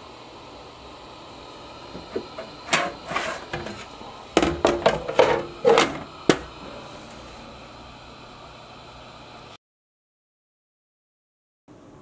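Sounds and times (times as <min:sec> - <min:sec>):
immersion circulator humming: 0:00.0 - 0:09.6.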